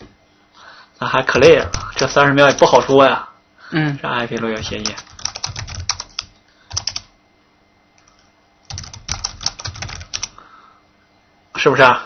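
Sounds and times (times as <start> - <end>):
computer keyboard typing: 1.5 - 2.9, 4.4 - 7.1, 8.0 - 10.4.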